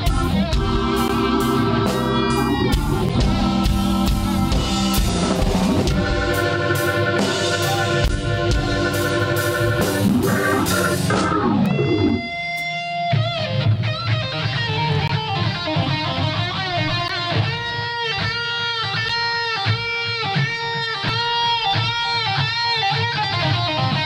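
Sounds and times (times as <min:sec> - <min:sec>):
bass guitar: 0:00.0 - 0:24.0
drum kit: 0:00.0 - 0:24.0
electric guitar: 0:00.0 - 0:24.0.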